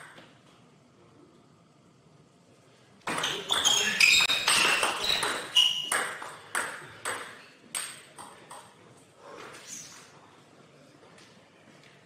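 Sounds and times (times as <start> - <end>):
table tennis ball bouncing: 3.0 - 8.8.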